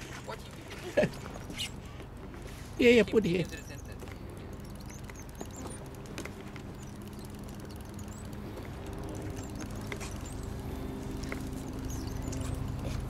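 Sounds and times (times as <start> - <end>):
low outdoor hum: 0.0 - 13.0
high chirps: 3.0 - 12.8
faint clicks and taps: 3.4 - 13.0.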